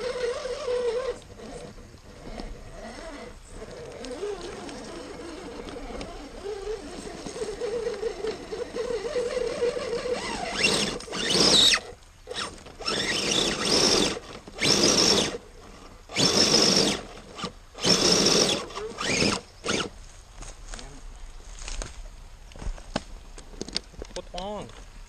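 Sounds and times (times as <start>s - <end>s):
electric motor and gears whining: 0.0s - 20.0s.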